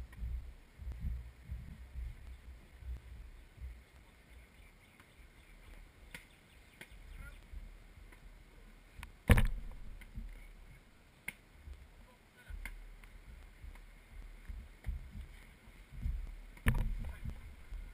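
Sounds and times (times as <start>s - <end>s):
wind rumble on microphone: 0.0s - 10.9s, 11.5s - 17.9s
faint taps: 12.5s - 17.9s.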